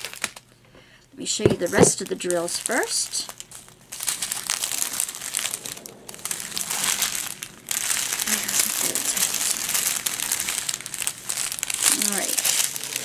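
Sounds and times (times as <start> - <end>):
plastic bags crinkling: 0.0 - 0.5, 1.2 - 13.0.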